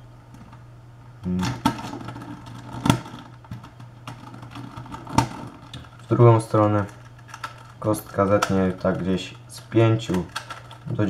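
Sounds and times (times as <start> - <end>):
plastic cube pieces clicking: 10.1 - 11.0.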